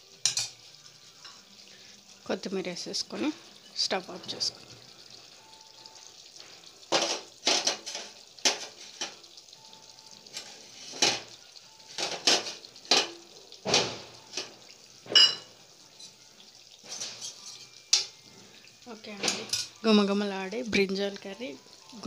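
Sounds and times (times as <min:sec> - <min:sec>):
kitchen utensils and dishes clattering: 0:00.1 - 0:01.6, 0:06.4 - 0:09.4, 0:10.2 - 0:19.9.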